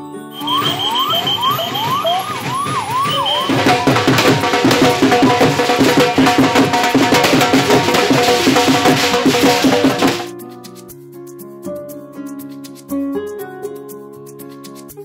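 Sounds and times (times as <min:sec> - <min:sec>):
siren wailing: 0:00.3 - 0:07.8
drum-led music: 0:00.3 - 0:12.8.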